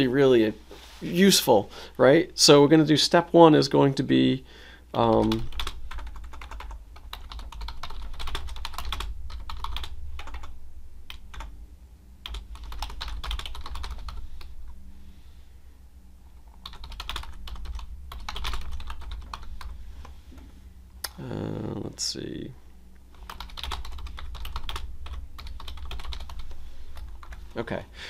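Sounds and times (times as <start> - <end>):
low steady hum: 0.0 - 28.0
typing on computer keyboard: 5.1 - 10.5, 12.3 - 14.2, 16.6 - 19.5, 23.1 - 27.4.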